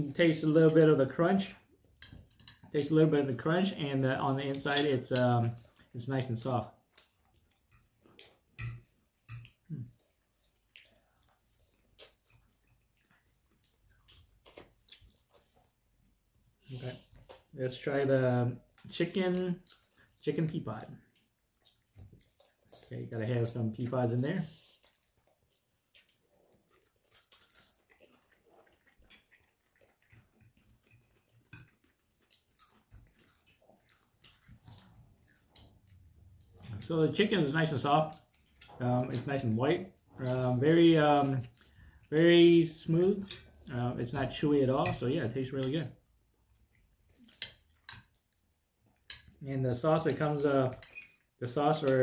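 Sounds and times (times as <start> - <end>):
person chewing crunchy food: 6.8 - 17.6, 21.0 - 22.9, 24.5 - 36.9, 46.1 - 49.4.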